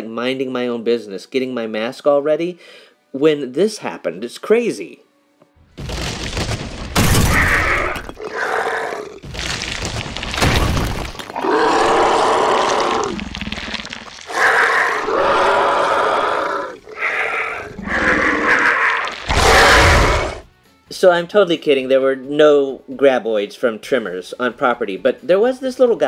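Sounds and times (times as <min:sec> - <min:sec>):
monster roaring and shrieking: 0:07.0 - 0:09.3, 0:10.4 - 0:20.5.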